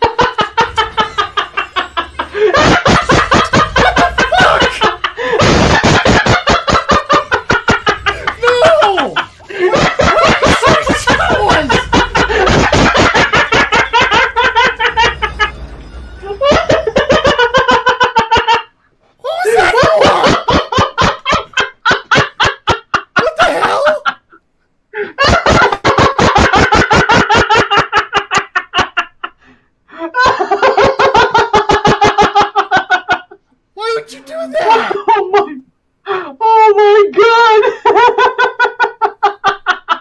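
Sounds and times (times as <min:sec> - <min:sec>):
men laughing hard: 0:00.0 - 0:24.4, 0:25.0 - 0:35.7, 0:37.2 - 0:40.0.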